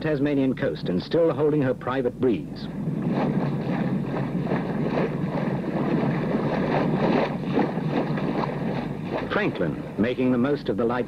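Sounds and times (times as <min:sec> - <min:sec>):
sea water rushing: 0:02.4 - 0:10.5
wind rushing: 0:02.7 - 0:10.0.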